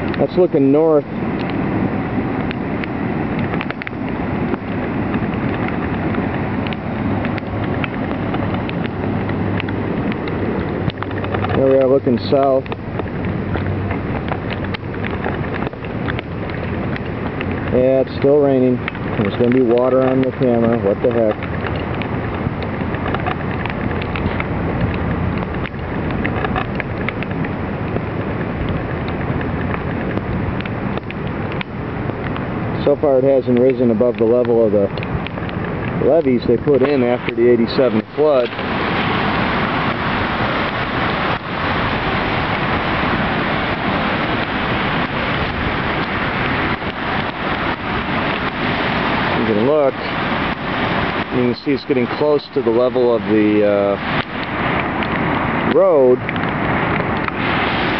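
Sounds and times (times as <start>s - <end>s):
floodwater rushing: 0.0s - 57.9s
rain ticks: 0.0s - 57.9s
small ticks: 12.6s - 28.0s, 28.6s - 32.5s.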